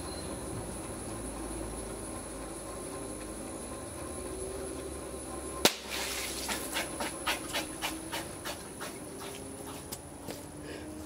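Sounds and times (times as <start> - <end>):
pump humming: 0.0 - 11.0
plastic bottle bursting bang: 5.6 - 6.5
water spraying hiss: 5.7 - 7.5.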